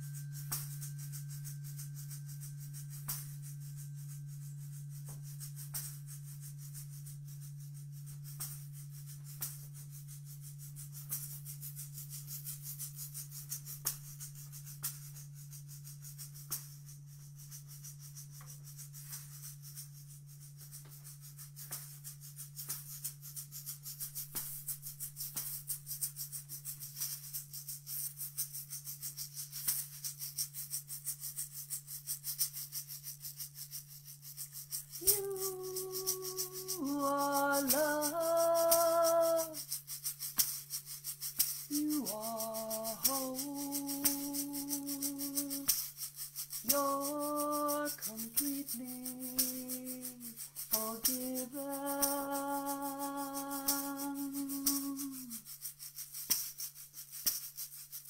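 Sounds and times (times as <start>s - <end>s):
hand rattle shaking: 0.0s - 58.0s
person singing held notes: 35.0s - 39.6s, 41.7s - 45.7s, 46.7s - 55.4s.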